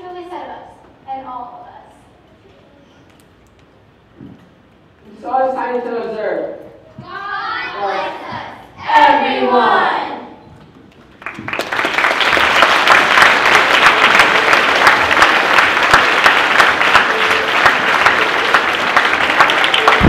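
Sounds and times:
audience applauding: 0:11.1 - 0:20.0.

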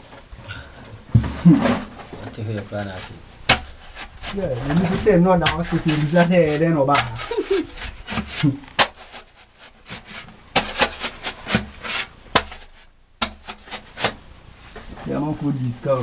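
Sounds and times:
hand tool scraping gravel and stone: 0:01.8 - 0:14.2.

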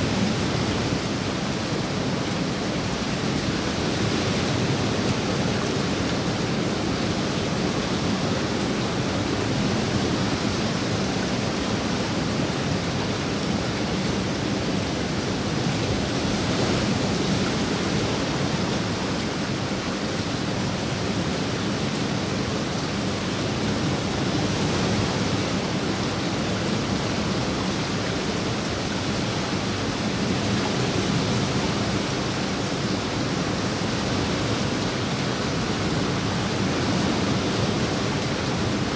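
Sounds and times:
rain falling on pool and foliage: 0:00.0 - 0:38.9.

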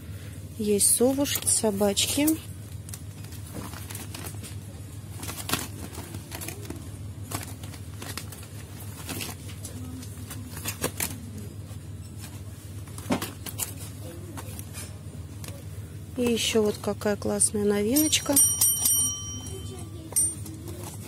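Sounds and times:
steady low hum: 0:00.0 - 0:21.0
plastic packaging crinkling: 0:02.7 - 0:11.5, 0:12.2 - 0:16.8.

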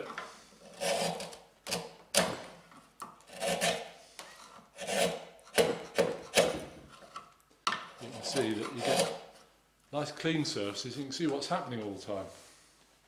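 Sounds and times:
chisel slicing through wood: 0:03.3 - 0:03.9, 0:04.8 - 0:06.7.

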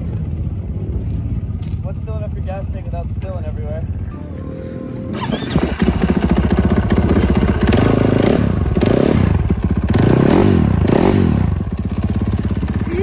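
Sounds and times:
dirt bike engine revving: 0:05.1 - 0:13.0.

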